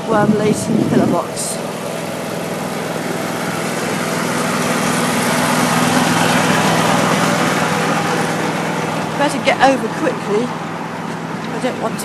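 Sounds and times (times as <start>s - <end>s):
ride-on lawn mower engine running: 0.0s - 12.0s.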